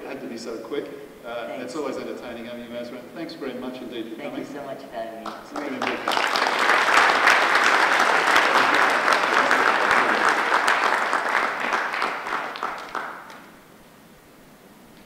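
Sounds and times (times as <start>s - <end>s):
audience applause: 5.3s - 13.5s.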